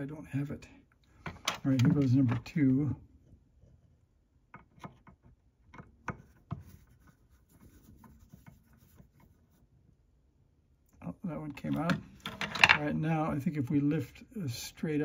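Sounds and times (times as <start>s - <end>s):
soft rubbing: 6.2s - 10.0s.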